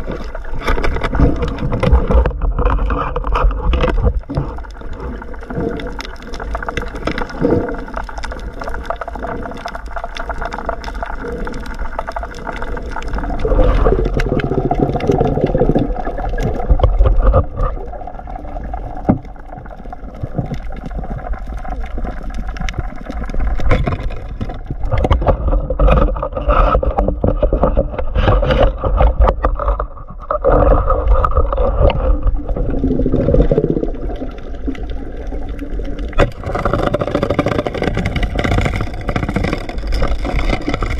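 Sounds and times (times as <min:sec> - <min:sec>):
low underwater rumble: 0:00.0 - 0:40.9
water gurgling against housing: 0:00.0 - 0:40.9.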